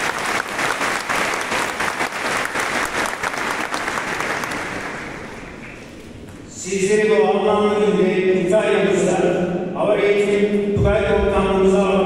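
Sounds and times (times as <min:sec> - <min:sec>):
crowd applauding: 0:00.0 - 0:05.6.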